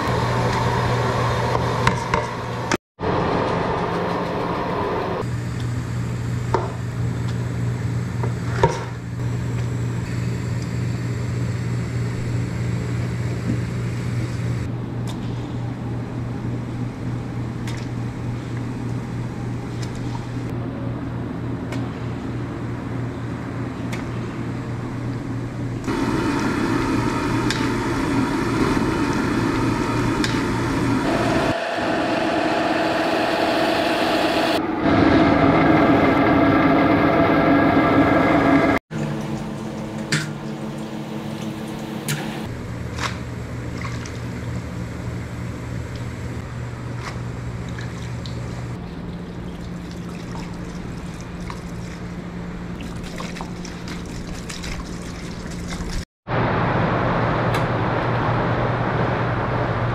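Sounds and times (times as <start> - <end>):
steady mechanical hum: 0.0 - 59.9
water bubbling in a boiling pot: 47.6 - 56.0.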